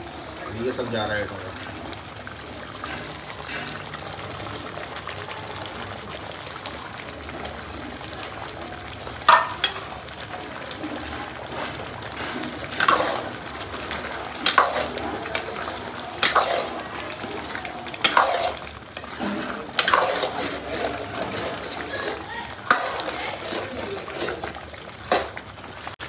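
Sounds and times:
gravy simmering in a wok: 0:00.0 - 0:26.0
ladle clanking against wok: 0:09.2 - 0:25.5.

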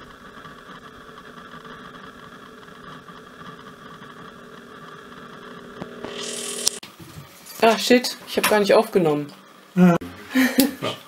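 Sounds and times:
induction coil electrical buzz: 0:00.0 - 0:07.6.

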